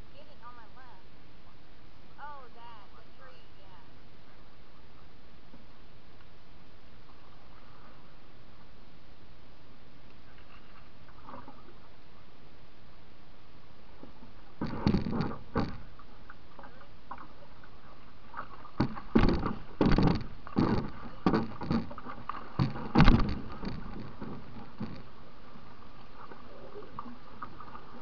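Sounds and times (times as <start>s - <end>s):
canoe knocks and splashes: 14.5s - 25.2s.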